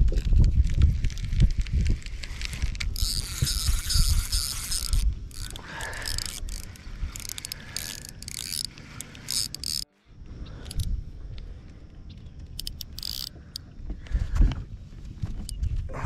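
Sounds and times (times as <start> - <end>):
wind buffeting microphone: 0.0 - 16.0
fishing reel gears whirring: 1.0 - 9.9, 10.6 - 10.9, 12.4 - 13.6.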